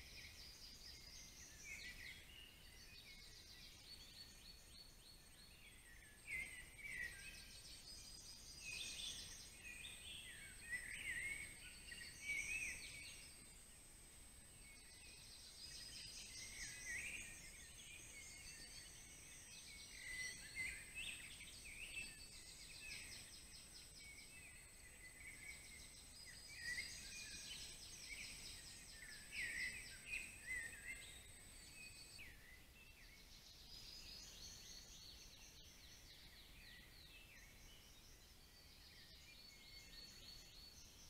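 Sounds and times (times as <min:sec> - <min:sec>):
songbirds chirping and trilling: 0:00.0 - 0:41.0.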